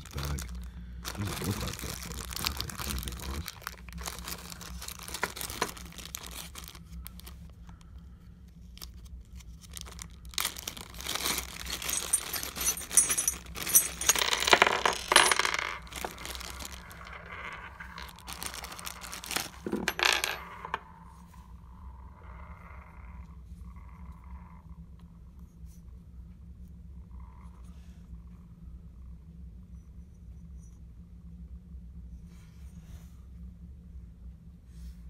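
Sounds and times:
plastic bag crinkling: 0:00.0 - 0:07.4, 0:08.8 - 0:20.0
screws clinking onto wooden table: 0:11.9 - 0:15.8.

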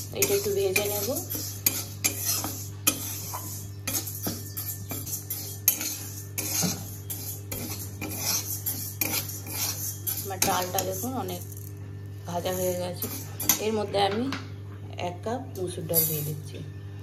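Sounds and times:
dry lentils rattling in pan: 0:00.0 - 0:11.7, 0:12.4 - 0:13.7
metal spatula scraping pan: 0:00.0 - 0:11.7, 0:12.3 - 0:13.9.

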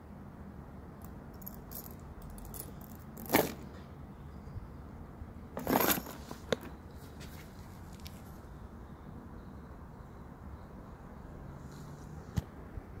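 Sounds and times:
metal handbag hardware clinking: 0:01.0 - 0:03.6, 0:05.6 - 0:06.7.

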